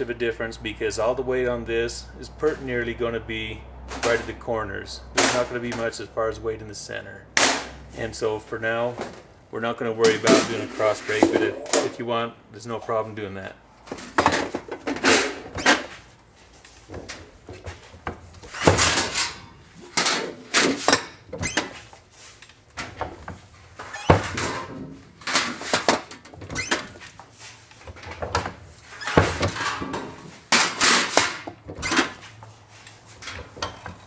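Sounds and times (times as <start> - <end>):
sheet metal rattling: 18.5 - 21.8.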